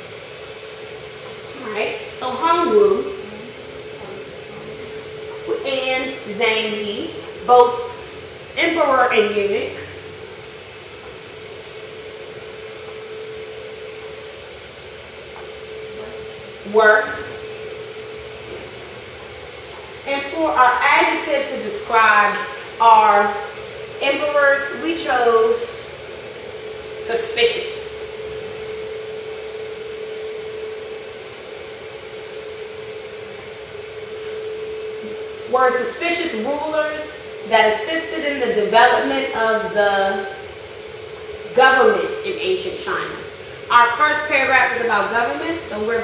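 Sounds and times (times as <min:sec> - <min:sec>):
steady mechanical hum: 0:00.0 - 0:46.0.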